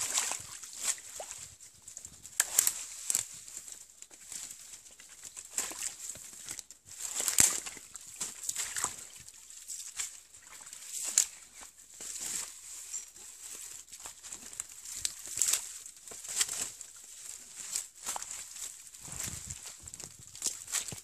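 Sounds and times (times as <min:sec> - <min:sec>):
footsteps crunching dry leaves: 0:00.0 - 0:21.0
brushing past undergrowth: 0:11.0 - 0:21.0.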